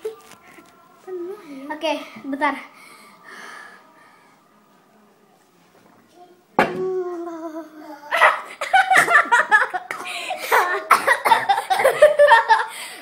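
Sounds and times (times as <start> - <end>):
girls laughing: 8.1 - 13.0.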